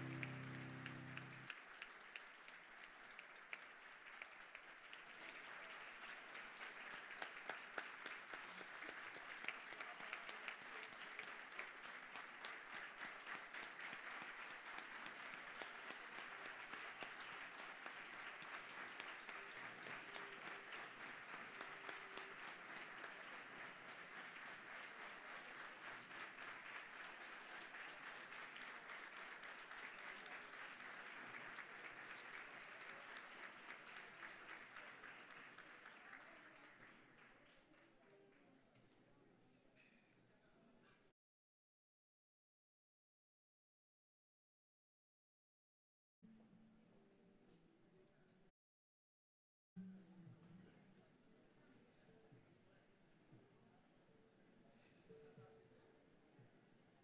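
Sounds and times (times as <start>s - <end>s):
audience applauding: 0.0s - 38.0s.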